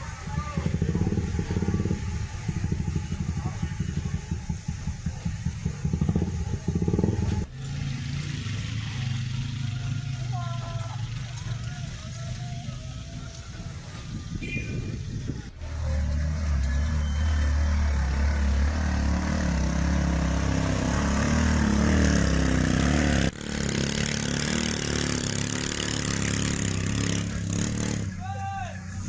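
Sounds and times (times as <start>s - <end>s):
small motorcycle engine humming: 0.0s - 28.2s
outdoor noise: 0.0s - 29.0s.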